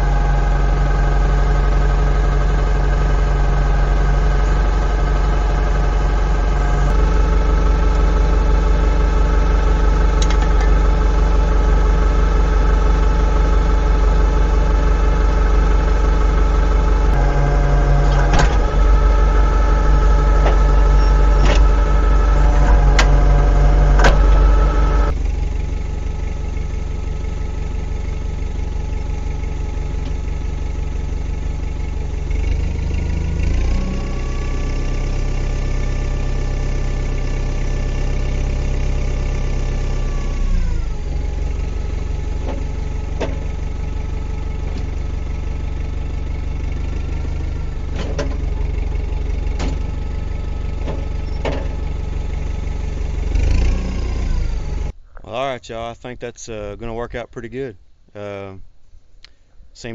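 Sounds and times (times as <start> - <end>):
tractor diesel engine idling: 0.0 - 58.7.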